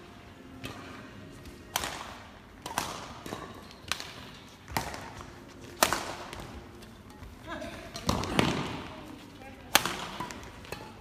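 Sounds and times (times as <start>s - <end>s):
badminton racket hitting shuttlecock: 1.7s - 6.6s, 9.7s - 11.0s.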